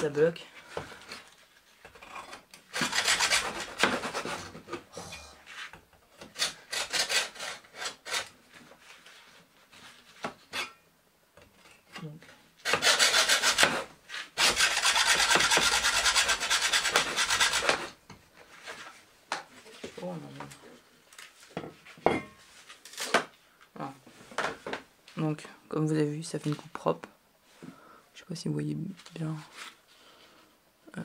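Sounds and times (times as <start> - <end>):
hacksaw sawing through bamboo: 2.7 - 4.8, 6.2 - 8.3, 12.6 - 18.0.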